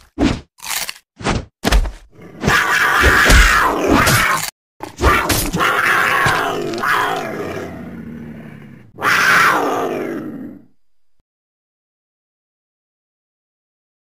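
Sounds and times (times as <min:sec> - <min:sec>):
big cat growling: 0:02.1 - 0:10.7
big cat roaring: 0:02.1 - 0:10.7.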